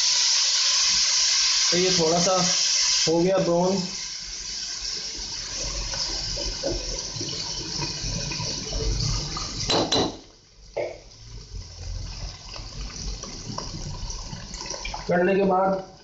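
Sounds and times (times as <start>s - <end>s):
paste sizzling in hot oil: 0.0s - 10.4s.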